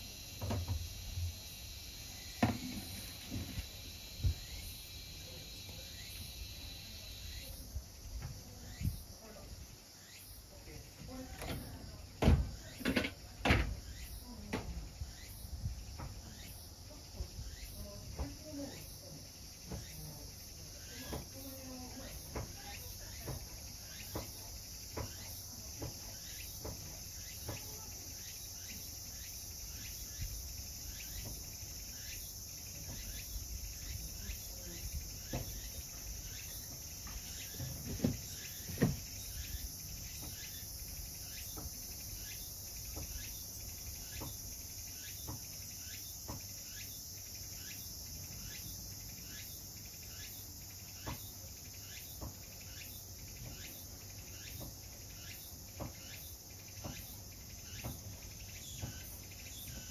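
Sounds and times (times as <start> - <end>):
steady high-pitched hiss: 0.0 - 59.9.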